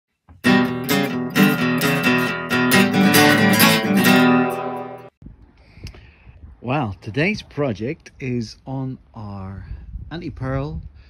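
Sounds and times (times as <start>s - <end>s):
strummed guitar chords: 0.3s - 5.2s.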